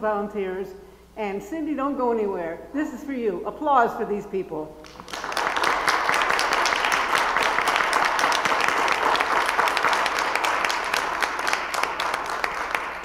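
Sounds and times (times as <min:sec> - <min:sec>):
congregation applauding: 0:04.8 - 0:13.0.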